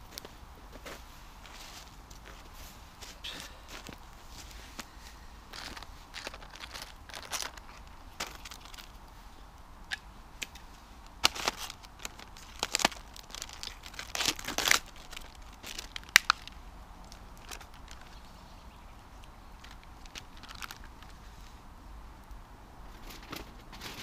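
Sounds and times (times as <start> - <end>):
fire popping: 0.0 - 21.2
log fire crackling: 0.0 - 24.0
plastic packet rustling: 5.5 - 9.0, 11.2 - 18.2, 19.6 - 21.2.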